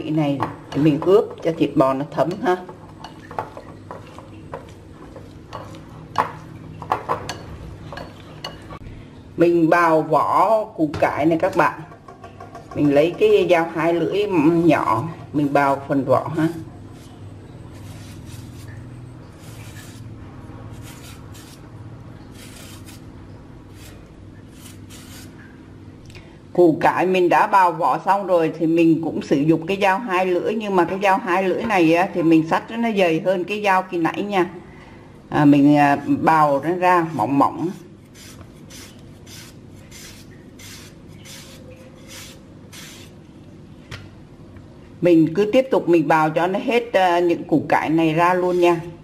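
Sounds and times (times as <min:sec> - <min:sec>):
peeling knife scraping radish skin: 0:16.9 - 0:20.1, 0:20.7 - 0:21.7, 0:22.3 - 0:23.1, 0:23.7 - 0:25.4, 0:37.0 - 0:43.2.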